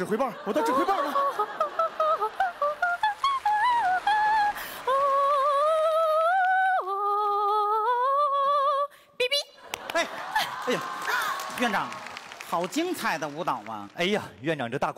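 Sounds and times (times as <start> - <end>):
woman singing wordless tune: 0.9 - 9.5.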